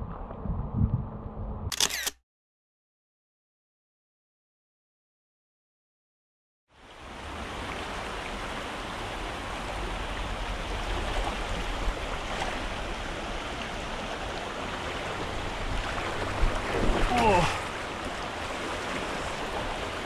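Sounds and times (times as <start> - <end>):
low water rumble: 0.0 - 1.7, 6.7 - 20.0
creek water flowing: 6.7 - 20.0.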